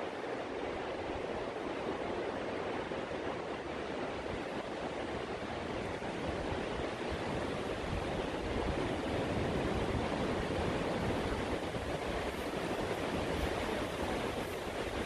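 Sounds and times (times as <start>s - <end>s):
surf breaking on beach: 3.6s - 15.0s.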